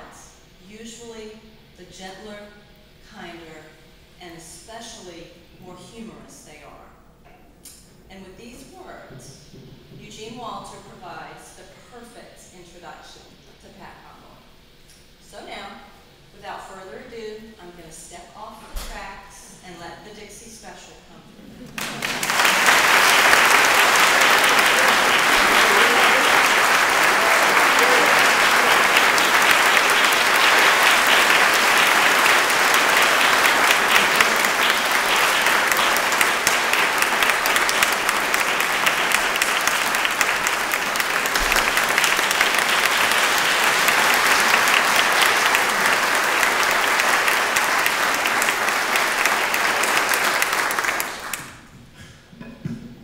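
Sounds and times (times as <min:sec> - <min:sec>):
audience applauding: 0:21.6 - 0:51.6.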